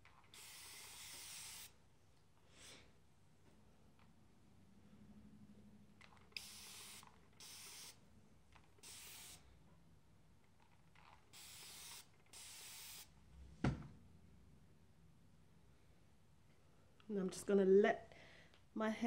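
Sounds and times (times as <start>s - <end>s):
spray bottle hissing: 0.3s - 1.8s, 6.3s - 8.0s, 8.8s - 9.4s, 11.3s - 13.1s.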